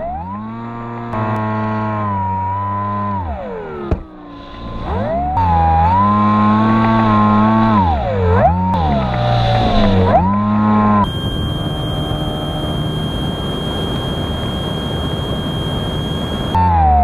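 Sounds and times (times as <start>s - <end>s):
electric motor whining: 0.0s - 16.9s
steady rushing noise: 8.8s - 16.6s
thin high whine: 8.8s - 16.6s.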